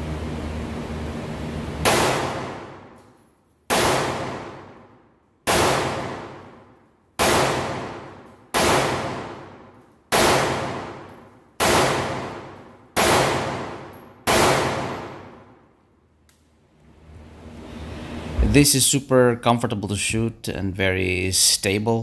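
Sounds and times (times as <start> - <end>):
rifle shots echoing: 1.8 - 3.0, 3.7 - 15.7.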